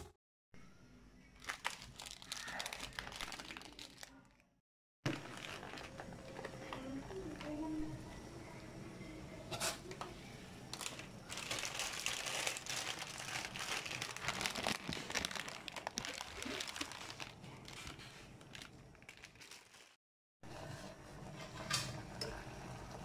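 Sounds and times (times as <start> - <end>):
plastic packet crinkling: 1.4 - 4.4, 5.1 - 7.5, 10.7 - 20.0.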